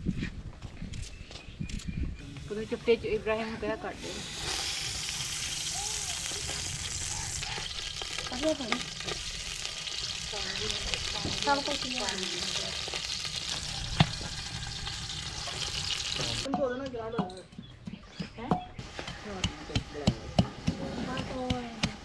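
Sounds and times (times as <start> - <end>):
onions sizzling in oil: 3.8 - 16.5.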